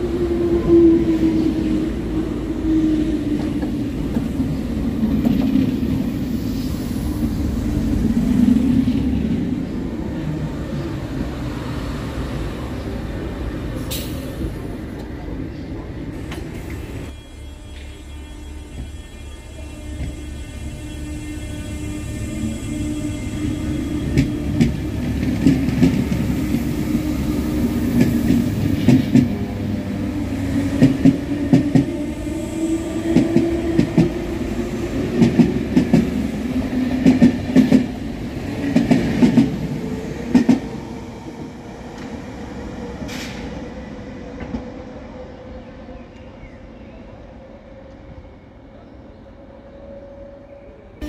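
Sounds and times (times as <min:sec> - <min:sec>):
train low hum: 0:00.0 - 0:51.0
train wheels clacking on rails: 0:23.7 - 0:29.5, 0:30.6 - 0:32.1, 0:33.0 - 0:40.8.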